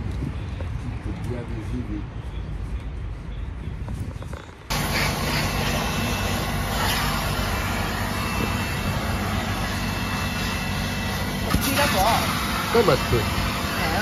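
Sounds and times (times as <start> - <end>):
hose nozzle on carpet mats: 11.4 - 14.0.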